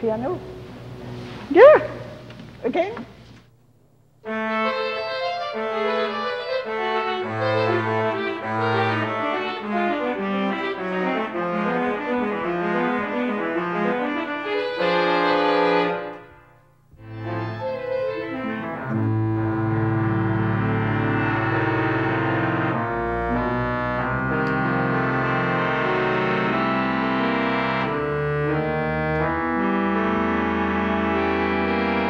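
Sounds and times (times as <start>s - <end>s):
pipe organ chords: 4.2s - 32.0s.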